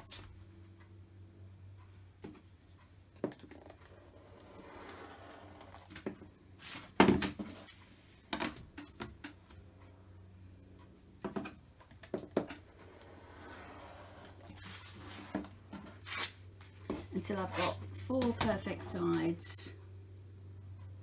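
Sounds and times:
cutter blade rolling along ruler: 0:03.6 - 0:06.8, 0:12.7 - 0:15.4.

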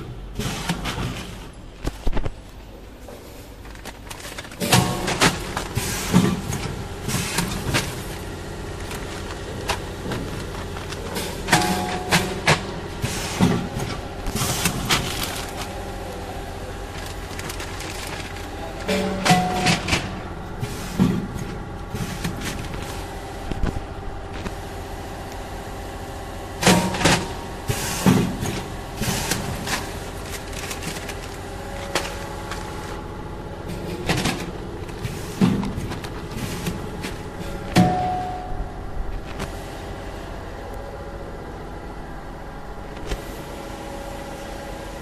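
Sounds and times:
packing machine hum: 0:00.0 - 0:45.0
plastic bags crinkling and knocking: 0:03.1 - 0:20.2, 0:28.1 - 0:33.1
plastic film crinkling: 0:14.7 - 0:18.9, 0:29.4 - 0:33.0.

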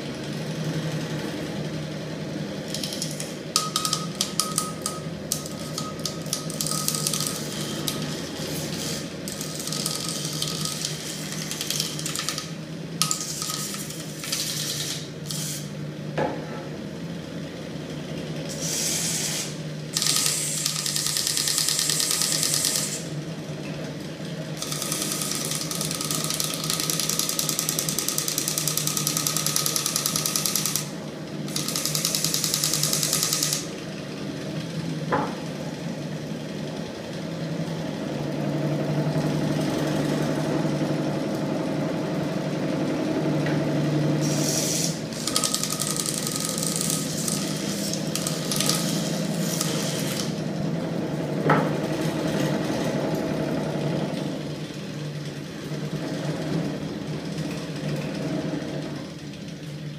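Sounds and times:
engine rig humming and ticking: 0:00.0 - 0:18.6, 0:19.5 - 0:59.9
harsh metallic rattle: 0:44.4 - 0:50.5.

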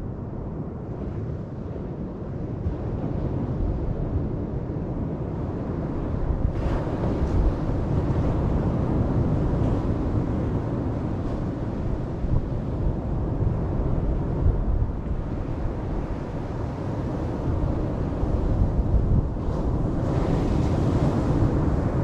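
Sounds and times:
wind buffeting microphone: 0:00.0 - 0:22.0
surf waves breaking on beach: 0:05.5 - 0:22.0.

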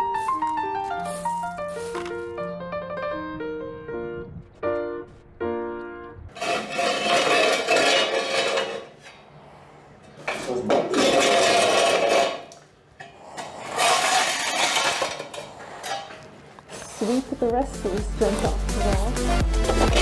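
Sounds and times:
metal scraper on concrete: 0:06.4 - 0:09.2, 0:10.3 - 0:12.6, 0:13.2 - 0:16.2, 0:19.6 - 0:20.0.

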